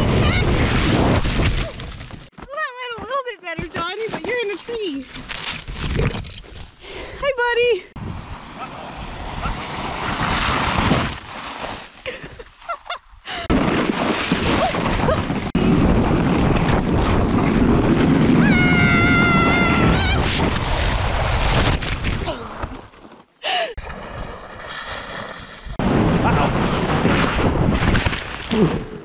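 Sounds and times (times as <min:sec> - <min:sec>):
sled sliding on icy snow: 0:08.5 - 0:12.7.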